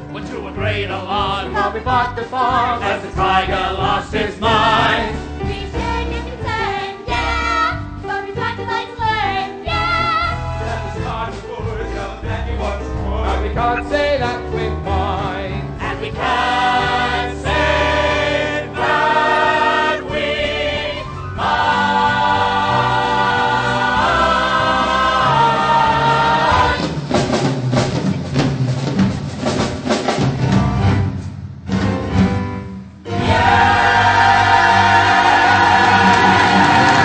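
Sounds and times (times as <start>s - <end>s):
musical accompaniment: 0.0s - 37.0s
cast singing in chorus: 33.1s - 37.0s.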